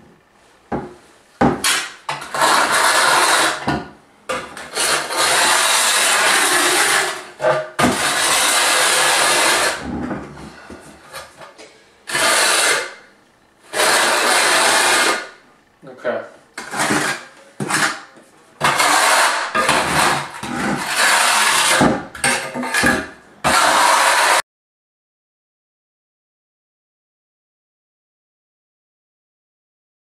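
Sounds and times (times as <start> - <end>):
trowel scraping mortar on tile: 1.6 - 11.4, 12.1 - 15.4, 16.6 - 24.4.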